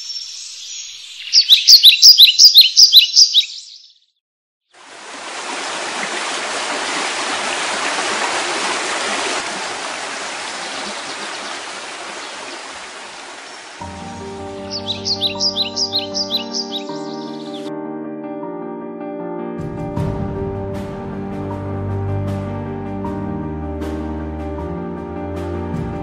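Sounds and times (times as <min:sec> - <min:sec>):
bird chirping: 0:00.0 - 0:04.1, 0:10.6 - 0:12.6, 0:13.2 - 0:17.7
flowing water: 0:04.8 - 0:14.0.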